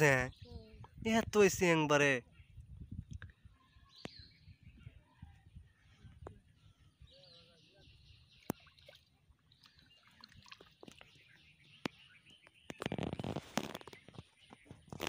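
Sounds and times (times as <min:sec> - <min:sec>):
faint birds chirping: 0:00.0 - 0:15.0
bamboo basket rustling and crackling: 0:12.7 - 0:15.0.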